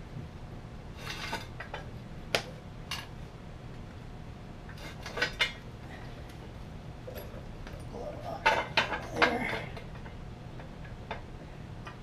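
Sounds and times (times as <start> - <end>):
metal parts and tools clinking: 7.1 - 10.2.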